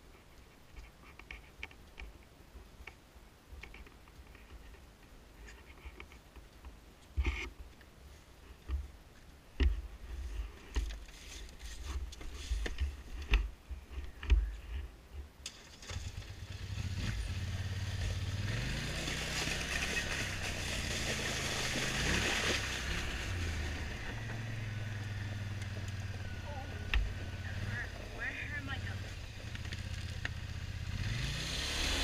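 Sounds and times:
atv engine running: 15.8s - 32.0s.

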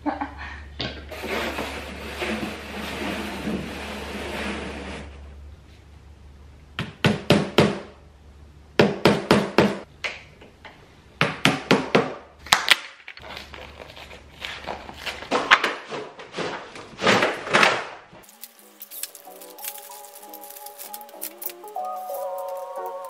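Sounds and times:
sharp knocks on wooden panels: 6.8s - 7.9s, 8.8s - 9.8s, 11.2s - 12.2s.

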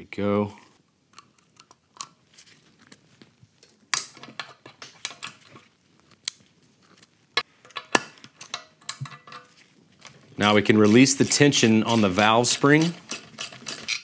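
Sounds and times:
steel parts and tools clicking: 10.5s - 14.0s.

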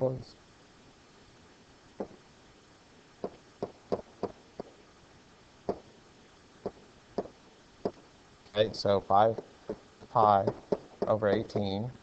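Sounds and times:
stylus tapping on whiteboard: 3.2s - 4.7s, 10.4s - 11.7s.

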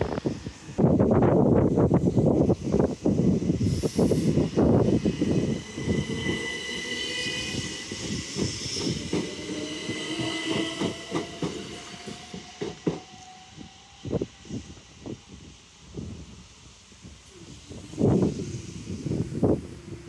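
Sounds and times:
train whine: 0.0s - 20.0s
train wheels knocking on rail joints: 8.0s - 13.2s.

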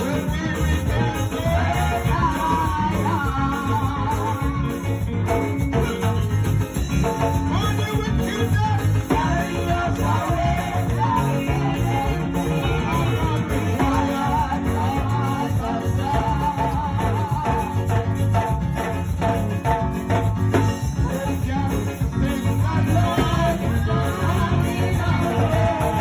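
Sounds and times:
electric bass line: 0.0s - 26.0s
live band music over loudspeakers: 0.0s - 26.0s.

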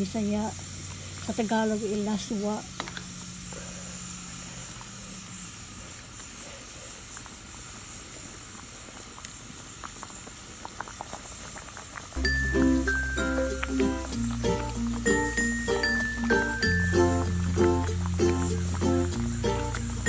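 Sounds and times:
soup simmering in a pot: 0.0s - 1.6s, 2.5s - 20.0s
music: 12.2s - 20.0s.

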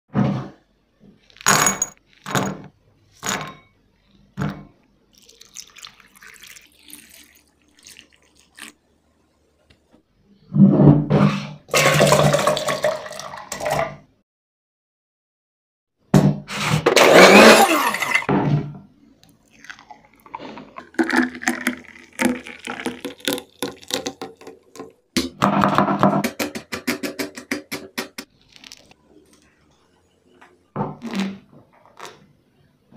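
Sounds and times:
milkshake splashing and gurgling: 5.1s - 8.8s, 19.4s - 25.0s
milk pouring into steel jar: 5.2s - 8.8s, 19.4s - 24.9s.

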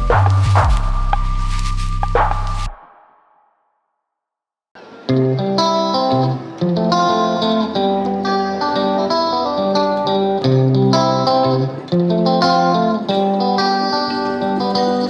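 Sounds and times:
plucked guitar melody: 4.8s - 15.0s.

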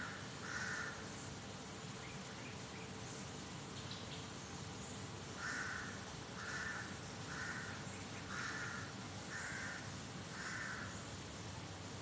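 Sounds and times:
crow cawing: 0.0s - 1.0s, 5.4s - 11.0s.

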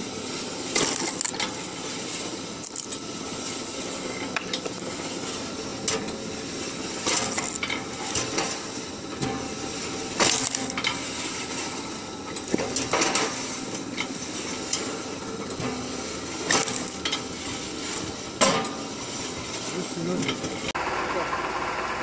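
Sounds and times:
mechanical hum: 0.0s - 22.0s
metallic clanks and wood cracks: 7.0s - 8.6s, 10.2s - 11.0s.

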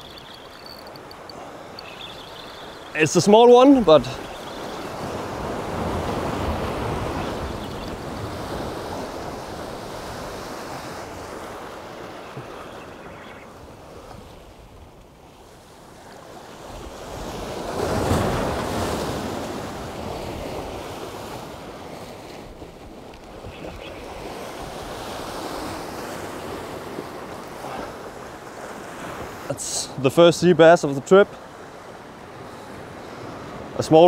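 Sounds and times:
sea waves washing on rocks: 0.0s - 13.2s.

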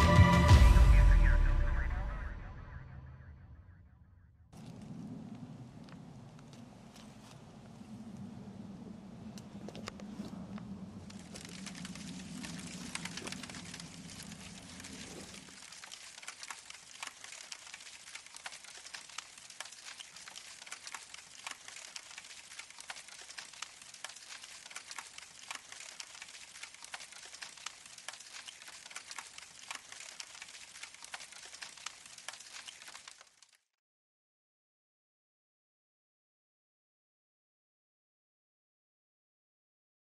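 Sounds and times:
fire crackling: 4.6s - 33.6s.

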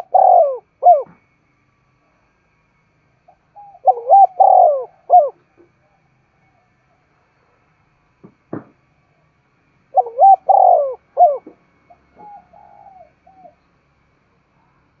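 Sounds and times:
dove cooing: 0.0s - 1.2s, 3.3s - 5.6s, 9.9s - 13.7s.

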